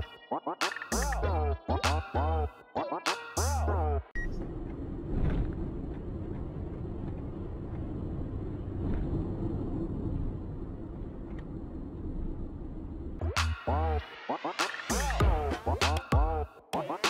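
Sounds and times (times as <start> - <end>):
traffic engine rumble: 3.6 - 14.0.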